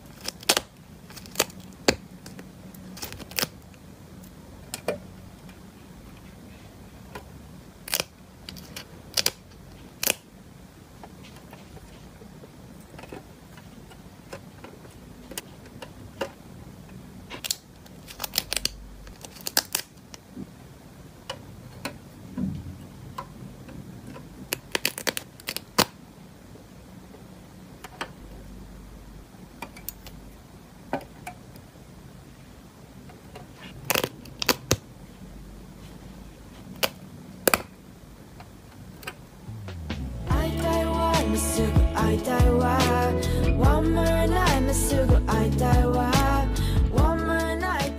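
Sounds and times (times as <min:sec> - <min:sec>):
stickers being handled: 0:00.0 - 0:03.6.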